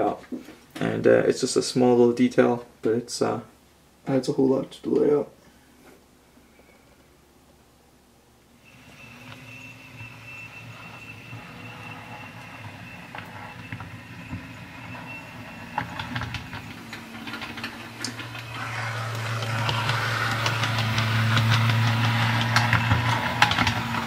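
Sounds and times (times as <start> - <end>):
model train motor whine: 8.6 - 24.0
wheels clicking over rail joints: 8.7 - 24.0.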